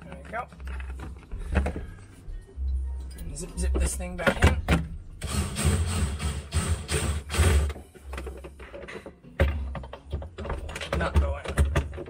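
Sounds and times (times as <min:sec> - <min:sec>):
cordless drill driving screw: 0:05.2 - 0:07.8.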